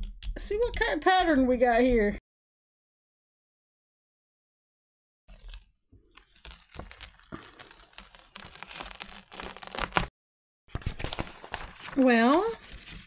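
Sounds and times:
paper peeling and crackling: 5.3s - 10.1s, 10.7s - 13.0s.

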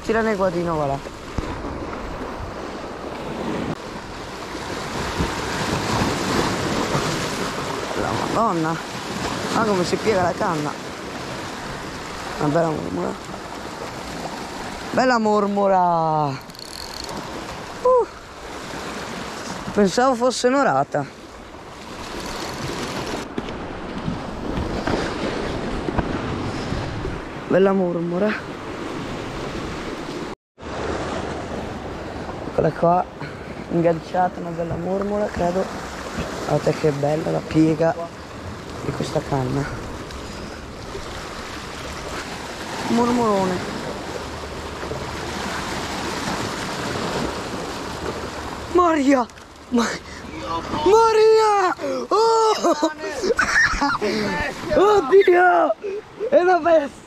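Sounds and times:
waves washing onto shore: 0.0s - 57.0s.

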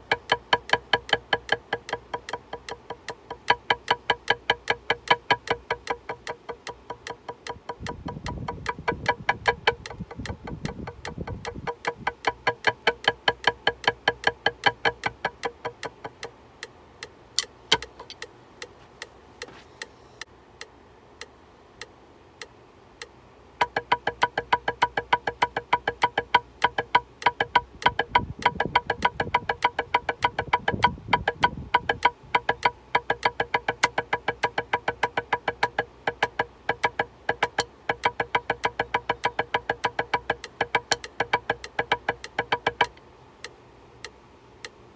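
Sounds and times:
drumsticks on practice pad: 0.0s - 44.8s
metronome clicking: 0.0s - 44.8s.

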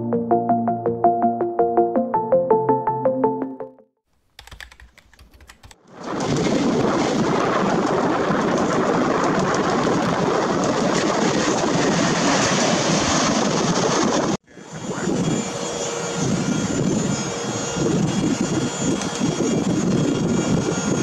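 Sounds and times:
jet airliner roar: 5.9s - 21.0s.

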